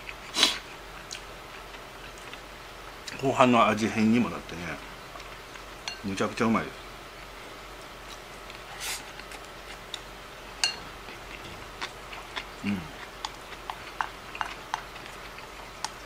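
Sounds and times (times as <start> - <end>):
person humming mm: 12.6 - 13.0.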